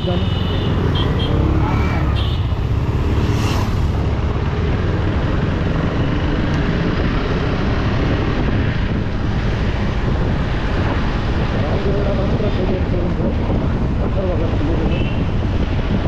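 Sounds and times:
motorcycle engine: 0.0 - 9.8
road noise: 0.0 - 16.0
wind rush on microphone: 0.0 - 16.0.

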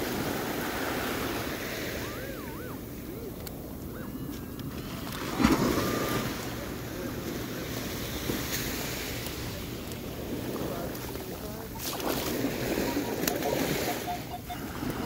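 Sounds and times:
surf washing in: 0.0 - 15.0
metal detector tone: 1.8 - 3.4, 12.6 - 14.6.

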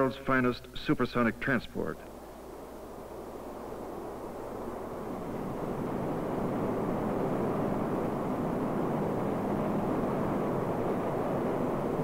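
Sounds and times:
rushing air roar: 2.1 - 12.0.

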